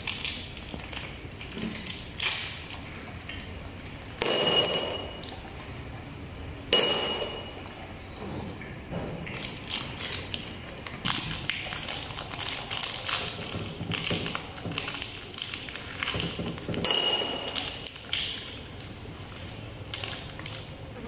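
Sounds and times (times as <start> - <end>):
high ping: 4.2 - 5.5, 6.7 - 8.0, 16.8 - 18.0.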